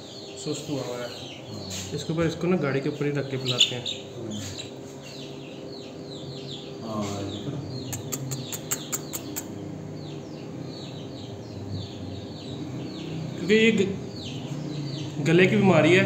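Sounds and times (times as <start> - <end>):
chicks peeping: 0.0 - 16.0
sharp ticks: 7.9 - 9.5.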